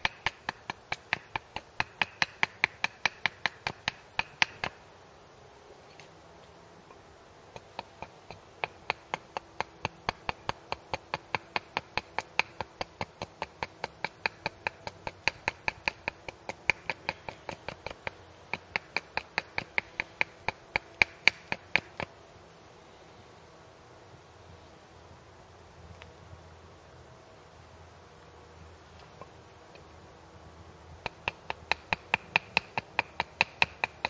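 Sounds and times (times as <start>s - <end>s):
hatchet chopping wood: 0.0s - 4.8s, 7.5s - 22.1s, 31.0s - 34.0s.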